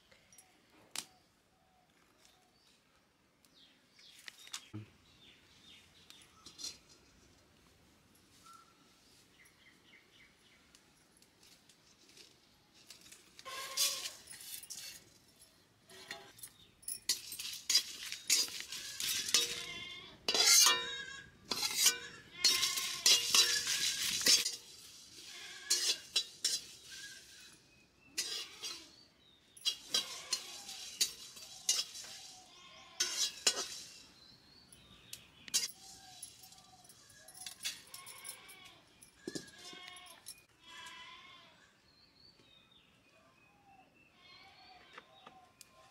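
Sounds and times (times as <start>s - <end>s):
metal spatula scraping a wok: 6.4s - 7.0s, 13.4s - 15.2s, 15.9s - 16.4s, 17.1s - 34.3s, 35.5s - 36.7s.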